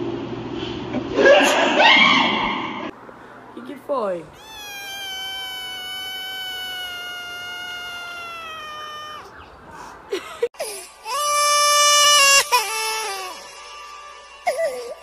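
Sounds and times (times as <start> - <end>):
high held wail: 4.4 - 9.4
kitten chirps: 4.4 - 9.4
kitten meowing: 4.4 - 9.4.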